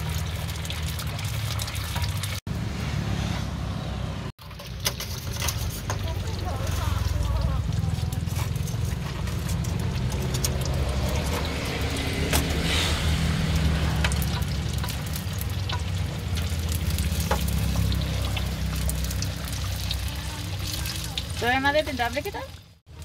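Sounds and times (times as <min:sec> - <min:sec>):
food sizzling in oil: 0:04.4 - 0:23.0.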